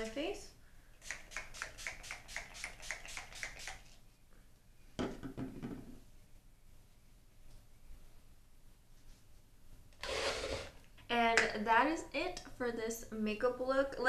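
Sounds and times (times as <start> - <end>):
spray bottle hissing: 1.0 - 4.0.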